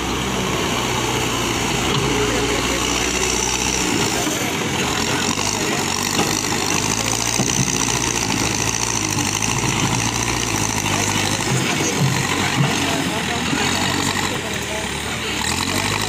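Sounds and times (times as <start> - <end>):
diesel engine running: 0.0 - 16.0
loader bucket scraping broken stone: 4.1 - 14.4.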